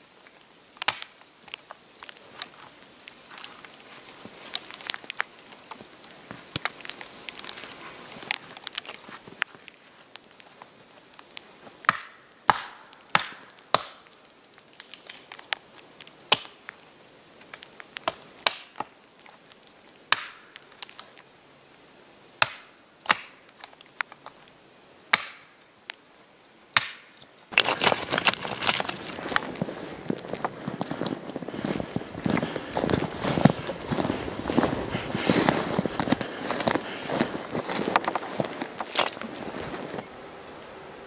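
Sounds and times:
wood splitting crack: 0.8s - 3.8s, 4.4s - 9.5s, 11.9s - 15.6s, 16.3s - 16.6s, 18.0s - 18.9s, 20.1s - 21.0s, 22.4s - 23.9s, 25.1s - 25.5s, 26.8s - 30.9s, 36.0s - 39.4s
hatchet chopping wood: 11.9s - 14.0s, 22.4s - 23.3s, 25.1s - 25.5s, 26.8s - 28.8s.

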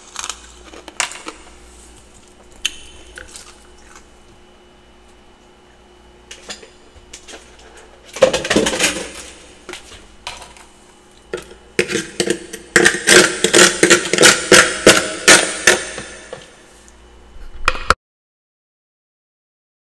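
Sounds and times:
frost crunching: 0.0s - 4.4s.

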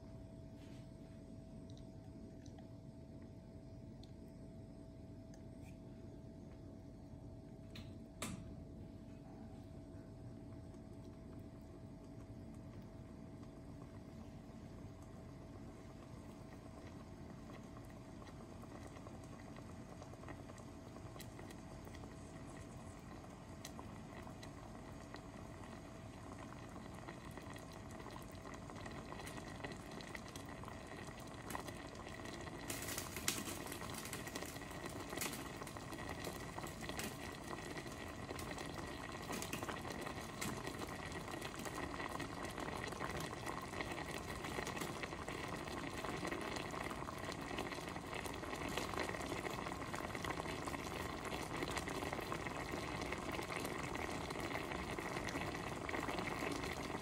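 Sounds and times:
broth bubbling in a pot: 0.0s - 57.0s.

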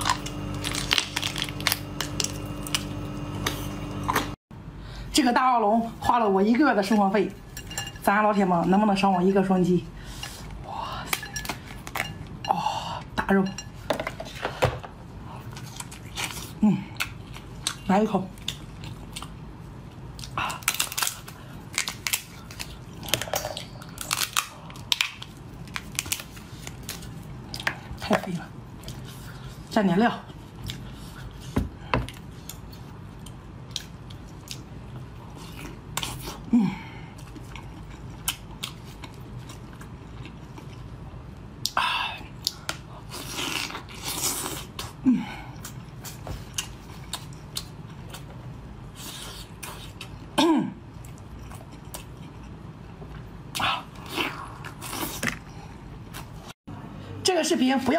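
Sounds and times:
chewing lobster: 37.1s - 41.2s.

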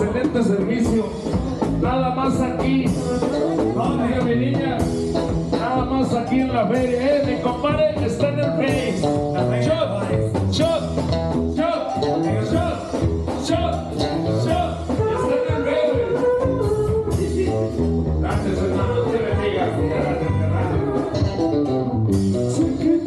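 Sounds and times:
bass and drums: 0.0s - 23.0s
person singing: 14.9s - 17.6s, 18.2s - 23.0s.

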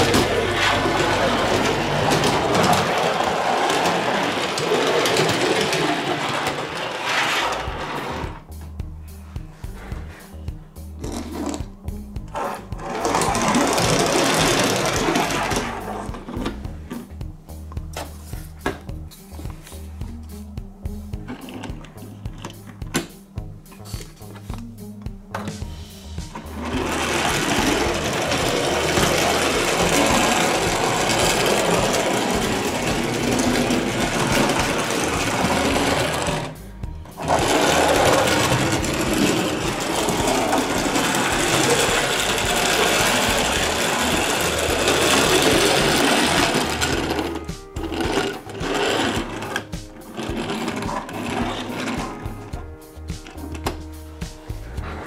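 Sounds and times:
toy vehicle mechanical whirr: 0.0s - 8.4s, 12.4s - 16.1s, 26.5s - 36.6s, 37.2s - 52.0s.

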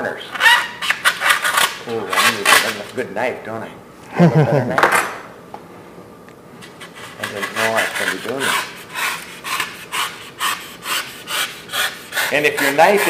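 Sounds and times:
knife rasping on foam: 6.6s - 13.0s.

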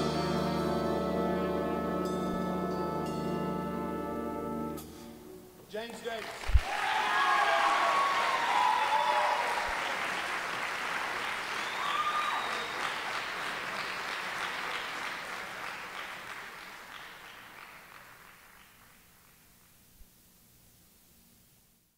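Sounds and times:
audience applauding: 5.8s - 19.6s.

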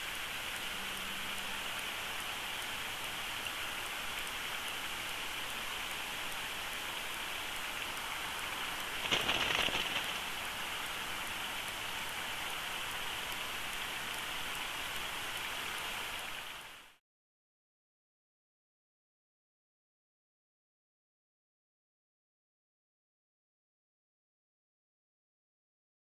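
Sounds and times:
outdoor microphone hiss: 0.0s - 17.0s
feather rustle: 9.0s - 10.3s.

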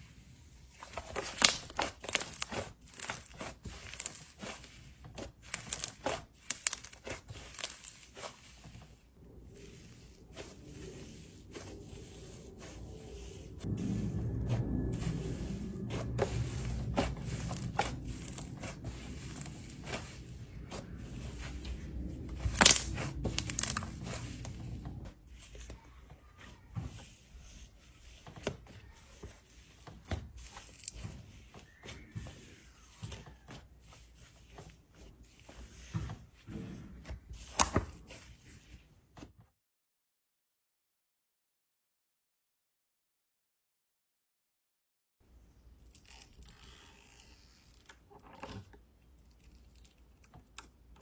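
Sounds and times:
hands squishing slime: 0.8s - 36.4s
low rumble: 9.0s - 25.3s.

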